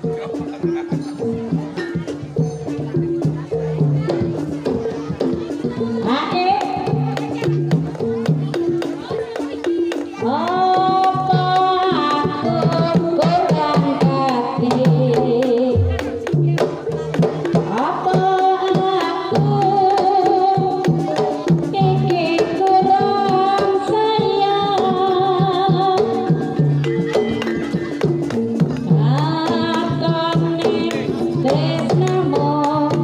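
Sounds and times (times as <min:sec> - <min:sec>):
gamelan accompaniment: 0:00.0 - 0:33.0
woman singing into a microphone: 0:05.9 - 0:07.5, 0:09.3 - 0:16.6, 0:17.7 - 0:26.6, 0:28.9 - 0:33.0.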